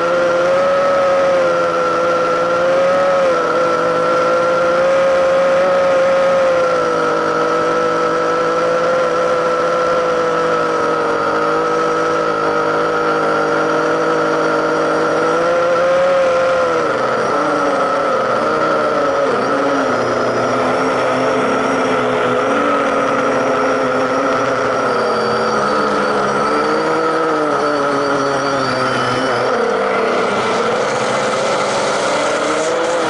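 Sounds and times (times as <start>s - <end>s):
drone propellers whining: 0.0s - 33.0s.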